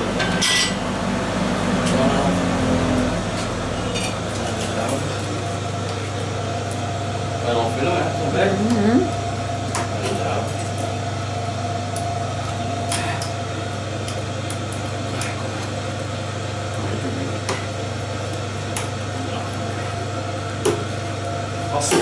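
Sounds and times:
electric motor humming: 0:08.3 - 0:09.2.

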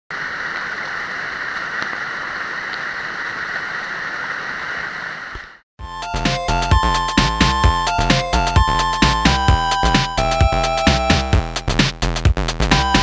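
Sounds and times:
electronic background music: 0:05.8 - 0:13.0.

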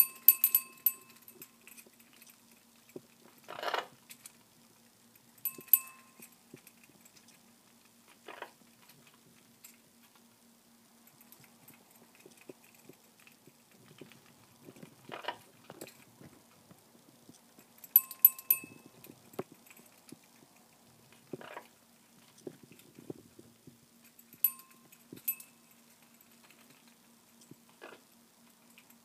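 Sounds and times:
small metal bell clinking: 0:00.0 - 0:01.9, 0:05.4 - 0:06.4, 0:17.8 - 0:19.1, 0:24.2 - 0:26.0.

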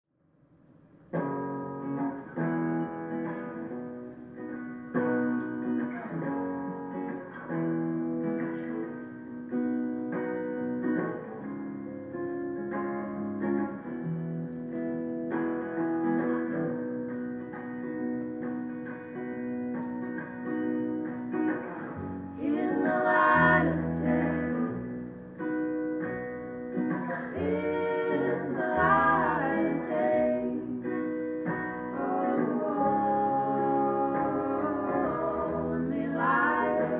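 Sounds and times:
plucked guitar: 0:01.0 - 0:36.9
banjo picking: 0:15.2 - 0:36.9
women singing: 0:22.3 - 0:25.0, 0:27.3 - 0:36.9.

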